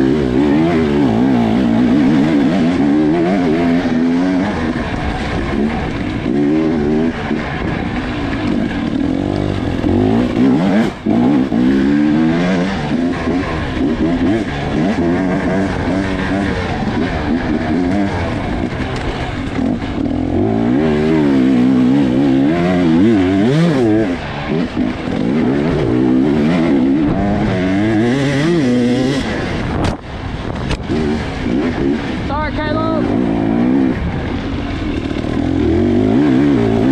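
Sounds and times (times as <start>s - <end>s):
dirt bike engine revving: 0.0s - 36.9s.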